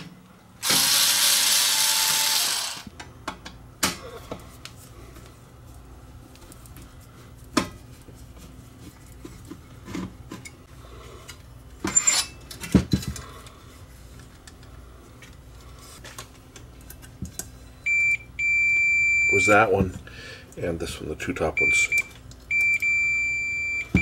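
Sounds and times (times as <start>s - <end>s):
metal tools clicking and clinking: 11.9s - 13.2s.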